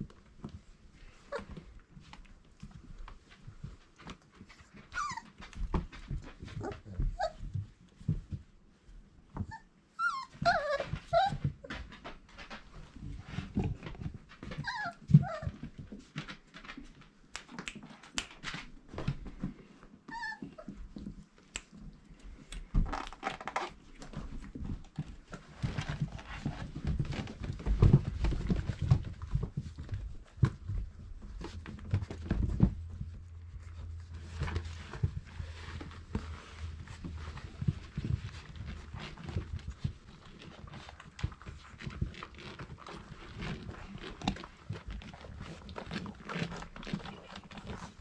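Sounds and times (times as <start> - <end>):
paws scratching and clicking on floor: 0.0 - 48.0
puppies whimpering: 4.9 - 5.4, 9.5 - 11.5, 14.6 - 15.6, 20.1 - 20.7
low thumping and shuffling: 24.0 - 48.0.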